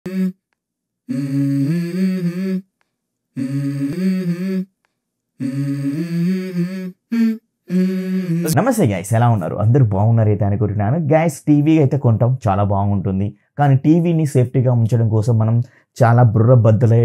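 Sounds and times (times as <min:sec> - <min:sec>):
voice humming melody: 0:00.0 - 0:00.4, 0:01.1 - 0:02.7, 0:03.4 - 0:04.7, 0:05.4 - 0:08.6.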